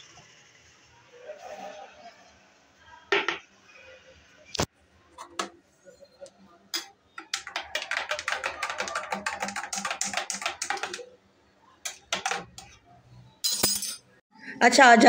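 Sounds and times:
spoon clinking in glass: 13.4 - 14.1.

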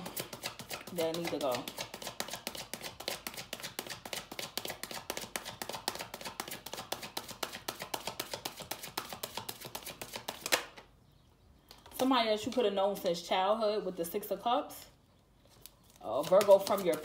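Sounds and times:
cards being shuffled: 0.0 - 10.8, 15.5 - 17.0.

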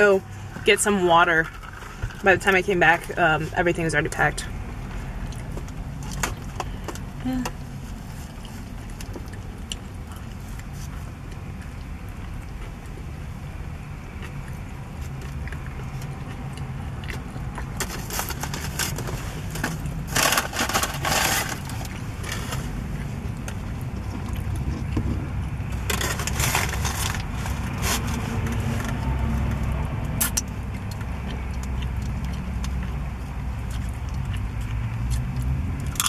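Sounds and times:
chips crunching: 14.2 - 24.9, 25.8 - 28.6
foil crinkling: 17.8 - 22.6, 25.9 - 28.7.

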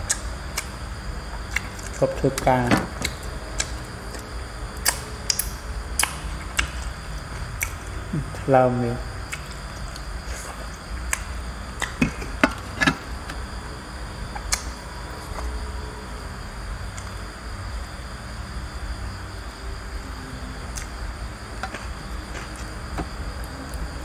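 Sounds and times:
eating clicks and smacks: 0.0 - 0.8, 1.4 - 8.5, 9.2 - 13.4, 14.3 - 15.5
night insects trilling: 0.0 - 24.0.

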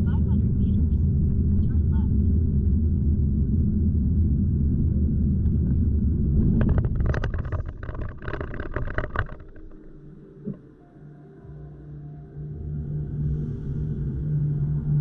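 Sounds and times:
car engine and road rumble: 0.0 - 10.8.

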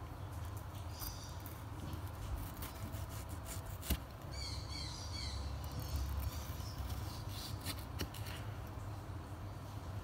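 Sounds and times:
bird chirping: 0.7 - 3.3, 4.2 - 7.8
knife slicing tomato: 1.0 - 4.3, 5.8 - 8.5.

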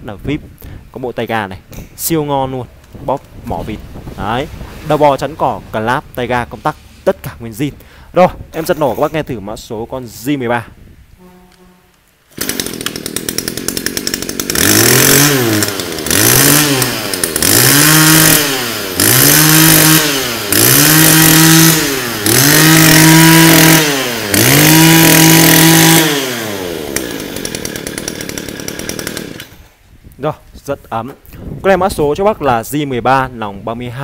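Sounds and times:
brush cutter engine revving: 12.3 - 29.8.

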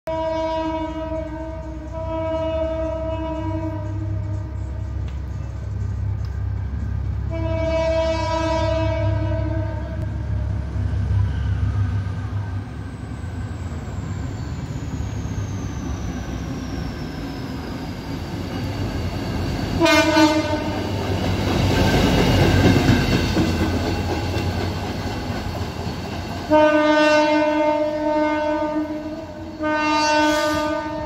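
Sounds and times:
locomotive horn blast: 0.1 - 5.0, 7.2 - 10.3, 19.8 - 21.0, 26.5 - 31.0.

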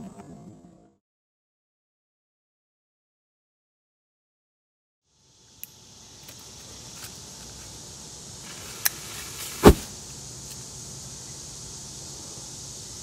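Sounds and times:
black powder flashing off: 9.2 - 10.0.

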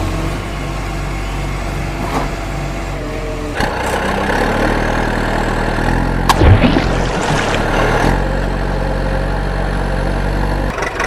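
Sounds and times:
truck engine running: 0.0 - 11.0
high engine whine: 5.3 - 10.7.

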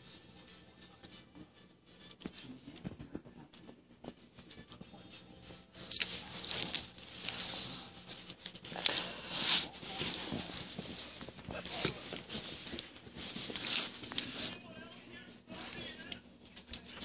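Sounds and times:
dog rubbing on carpet: 6.1 - 7.9, 9.1 - 14.6.

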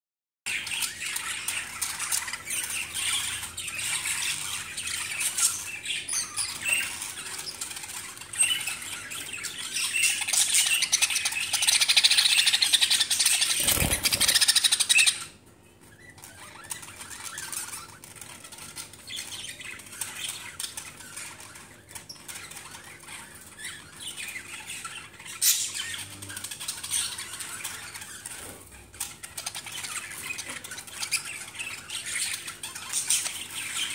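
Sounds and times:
budgerigars chattering and squawking: 0.5 - 33.9
wings fluttering: 13.3 - 14.7.

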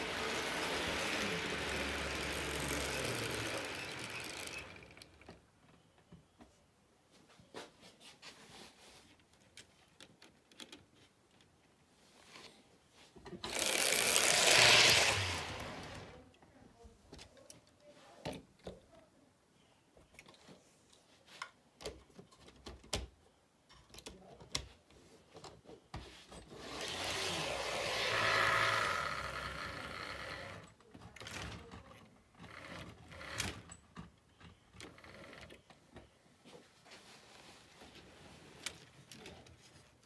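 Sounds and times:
model train motor whine: 0.0 - 5.2, 13.5 - 16.2, 26.6 - 30.7
model train wheels clicking on rails: 0.0 - 5.4, 13.4 - 16.2, 26.6 - 30.7.

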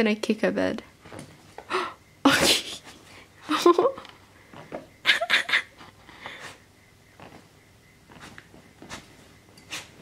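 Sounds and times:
dog sniffing and snorting: 6.2 - 7.3, 8.1 - 10.0.

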